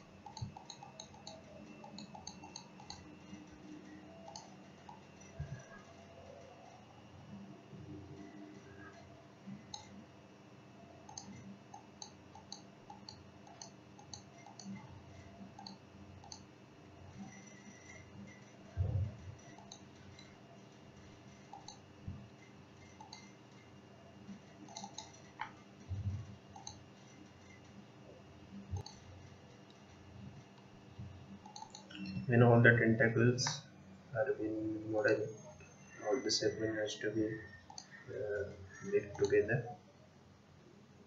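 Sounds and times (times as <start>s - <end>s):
computer mouse clicking: 0.0s - 6.6s, 8.2s - 10.0s, 11.0s - 16.5s, 17.1s - 20.4s, 21.3s - 23.7s, 24.3s - 27.8s, 28.7s - 32.2s, 37.6s - 38.0s
steady faint hum: 0.0s - 41.0s.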